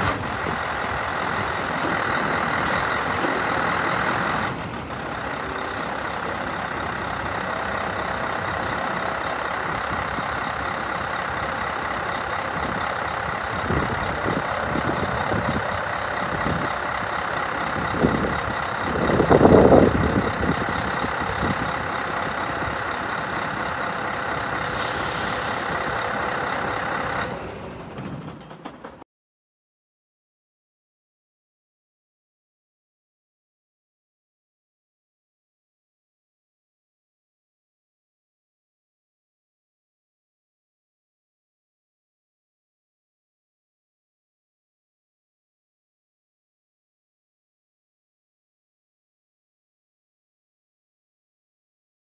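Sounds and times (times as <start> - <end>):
diesel truck engine running: 0.0 - 29.0.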